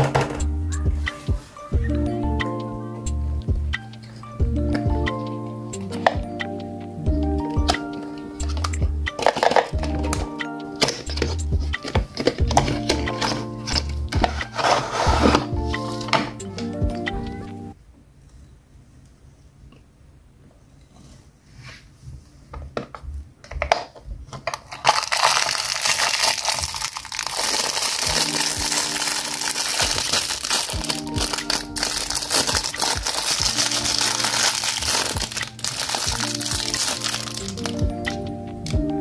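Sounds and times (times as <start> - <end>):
light background melody: 0.0 - 17.8, 24.9 - 39.0
plastic wrapper crinkling: 8.6 - 10.2, 24.4 - 37.8
plastic toy parts clicking: 24.4 - 37.7.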